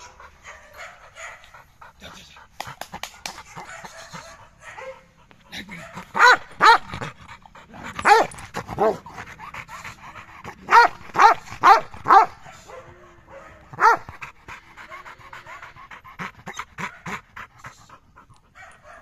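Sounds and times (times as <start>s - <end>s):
dog barking: 0.0s - 1.5s, 3.2s - 5.1s, 5.7s - 6.9s, 8.0s - 9.0s, 10.6s - 14.1s, 18.6s - 19.0s
dog panting: 0.0s - 19.0s.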